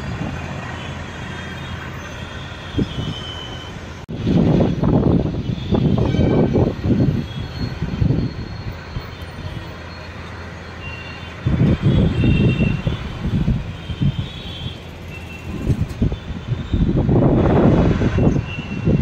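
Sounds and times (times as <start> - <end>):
wind buffeting microphone: 4.1 - 9.1, 11.4 - 19.0.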